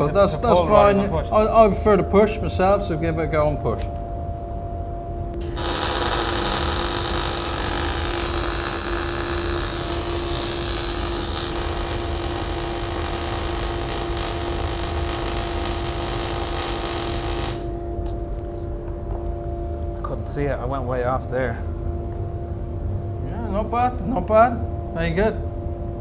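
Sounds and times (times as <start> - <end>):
fume extractor humming: 5.3 - 18.2
welding arc crackling: 5.4 - 18.2.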